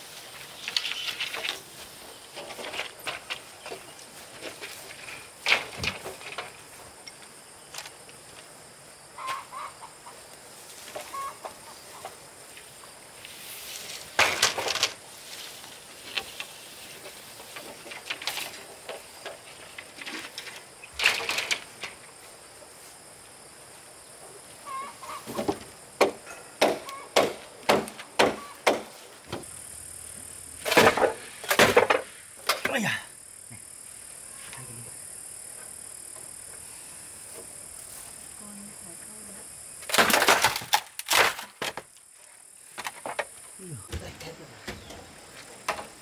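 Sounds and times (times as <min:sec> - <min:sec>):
chickens clucking: 0:09.2 - 0:10.2, 0:10.9 - 0:12.2, 0:24.6 - 0:25.6
sharp knocks: 0:25.3 - 0:29.4.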